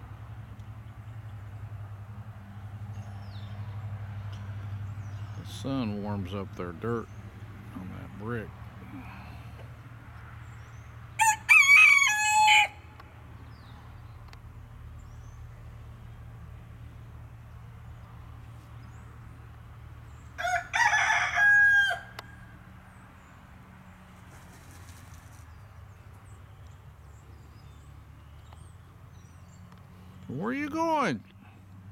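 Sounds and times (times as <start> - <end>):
rooster crowing: 11.2 - 12.9, 20.4 - 22.6.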